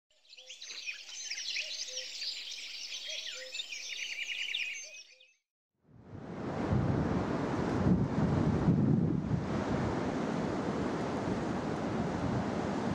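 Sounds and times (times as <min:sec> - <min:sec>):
birds chirping and trilling: 0:00.1 - 0:05.4
wind on microphone: 0:05.9 - 0:12.9
surf: 0:06.1 - 0:12.9.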